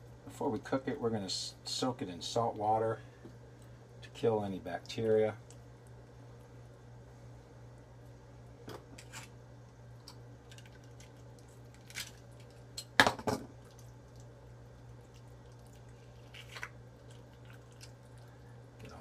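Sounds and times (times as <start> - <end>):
low steady hum: 0.0 - 19.0
soft wet handling sounds: 13.5 - 19.0.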